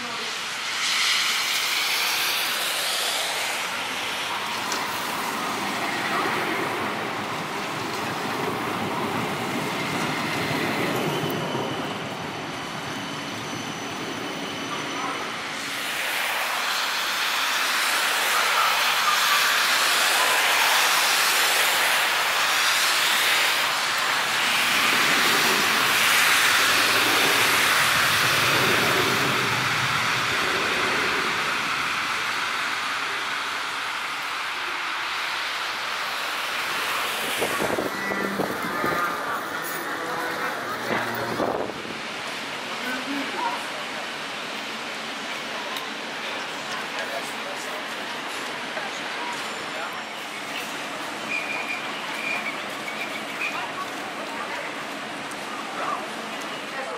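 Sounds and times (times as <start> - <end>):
high whine: 0.0 - 43.2
tram rolling on rails: 0.0 - 56.9.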